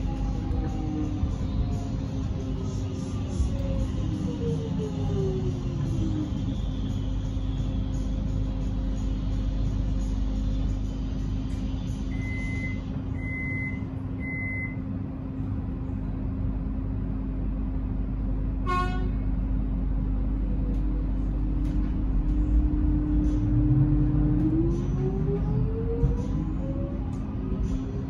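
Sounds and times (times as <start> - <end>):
electrical hum: 0.0 - 28.0
train horn toot: 18.6 - 19.3.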